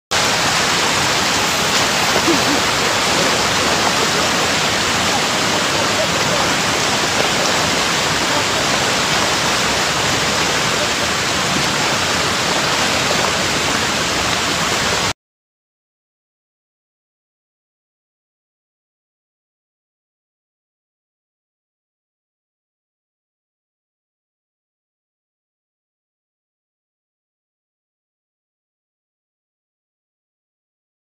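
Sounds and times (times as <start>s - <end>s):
steady rushing hiss: 0.2s - 14.7s.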